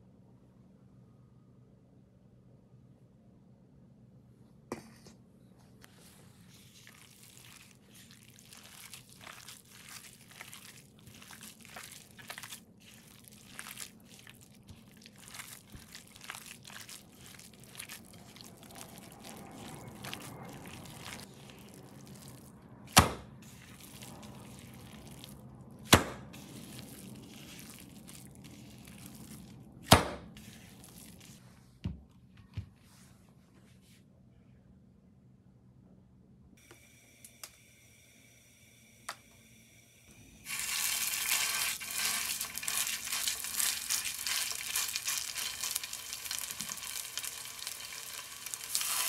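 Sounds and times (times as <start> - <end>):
hand squishing wet meat: 6.4 - 31.4, 40.5 - 49.0
meat slaps: 22.9 - 24.2, 25.9 - 31.2.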